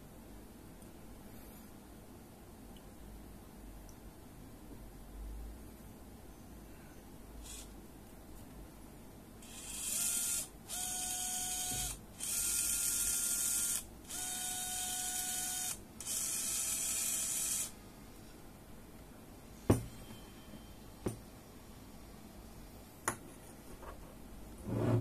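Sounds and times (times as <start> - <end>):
gearmotor whirring: 9.4 - 17.7.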